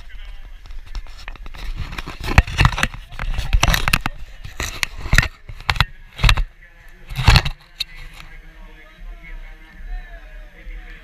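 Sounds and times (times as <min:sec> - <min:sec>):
camera handling noise: 0:00.6 - 0:08.3.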